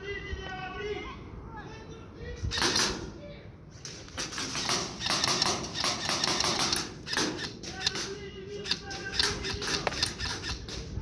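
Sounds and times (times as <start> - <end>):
airsoft guns firing: 4.2 - 10.8.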